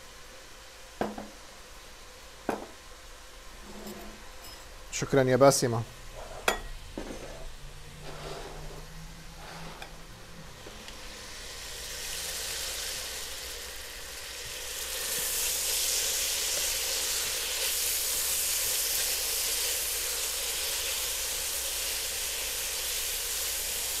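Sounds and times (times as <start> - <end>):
beef sizzling in hot oil: 10.5 - 24.0.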